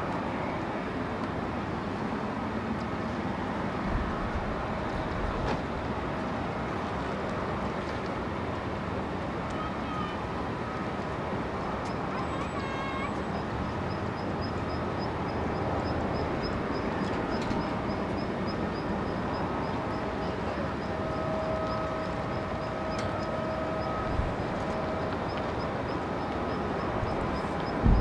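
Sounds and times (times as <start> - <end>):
distant jet engines rushing: 0.0 - 28.0
faint engine whine: 0.0 - 28.0.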